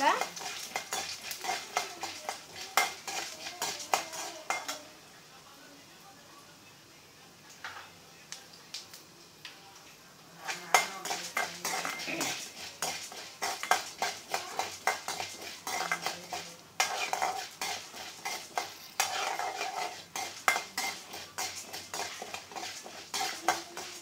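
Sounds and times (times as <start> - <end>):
metal ladle scraping a pan: 0.0 - 4.8, 10.4 - 24.0
light sizzle: 0.0 - 24.0.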